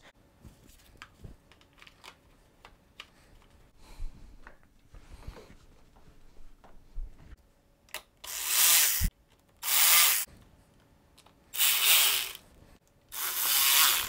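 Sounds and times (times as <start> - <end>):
electric ratchet running: 8.2 - 10.3, 11.6 - 12.4, 13.1 - 14.0.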